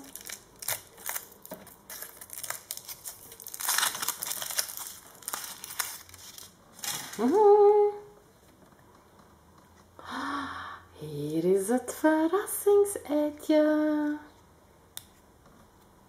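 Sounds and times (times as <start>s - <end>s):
foil wrapper crinkling: 0.0s - 7.4s.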